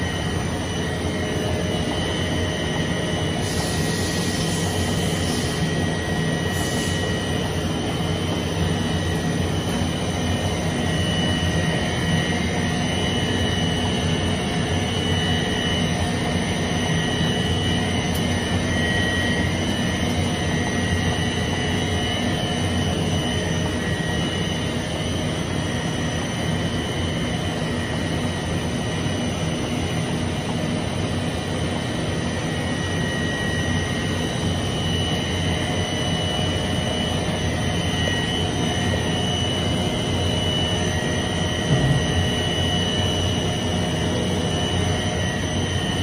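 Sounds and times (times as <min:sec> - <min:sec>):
brief thump: 0:41.7 - 0:42.2.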